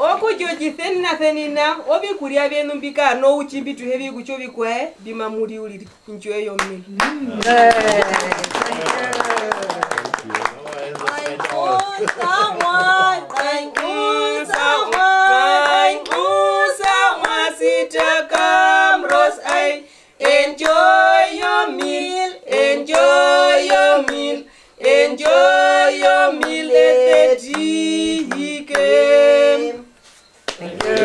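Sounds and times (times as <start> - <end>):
hands clapping: 6.6 - 15.1, 15.7 - 17.4, 26.4 - 27.7, 30.5 - 31.0
women singing a cappella: 11.3 - 31.0.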